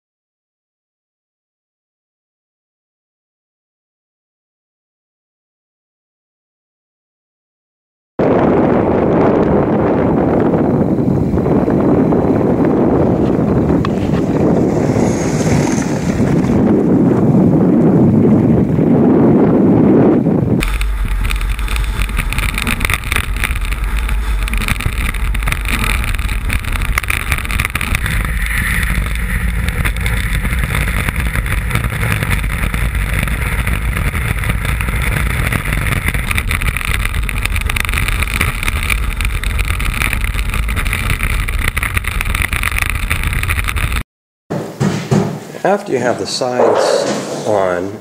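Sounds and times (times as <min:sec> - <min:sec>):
wind on microphone: 0:08.2 - 0:44.0
runners on ice: 0:20.6 - 0:44.0.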